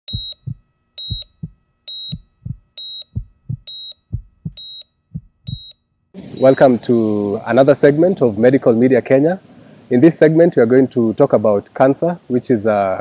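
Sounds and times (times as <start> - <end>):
low heartbeat thumps: 0.1 - 5.7
heart monitor beeps: 0.1 - 5.8, 6.4 - 6.7.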